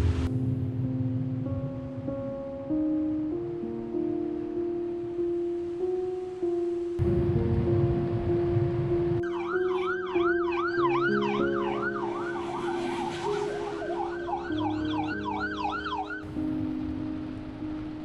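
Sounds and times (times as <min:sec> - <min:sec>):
background music with held notes: 0:00.0 - 0:18.0
siren yelping: 0:09.2 - 0:16.2.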